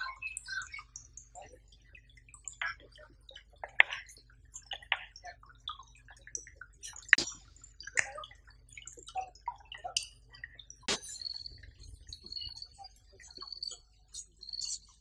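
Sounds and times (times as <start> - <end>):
sharp clicks: 10.8 - 11.5.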